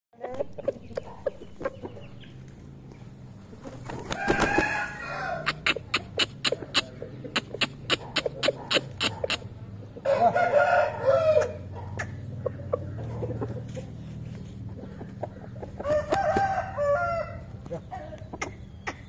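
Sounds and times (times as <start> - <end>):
rooster clucking: 0.2 - 2.5, 3.3 - 19.0
wings flapping: 3.6 - 5.0.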